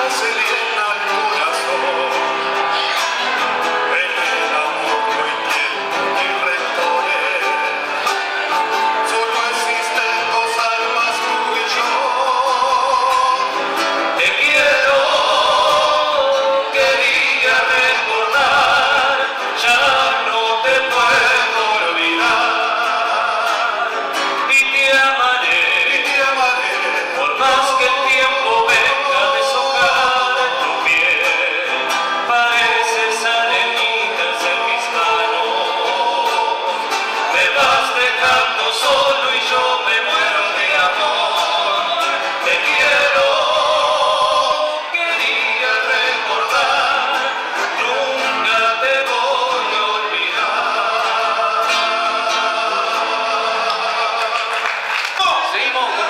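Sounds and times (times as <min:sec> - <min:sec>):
acoustic guitars: 0:00.0 - 0:56.0
men singing folk song: 0:00.0 - 0:56.0.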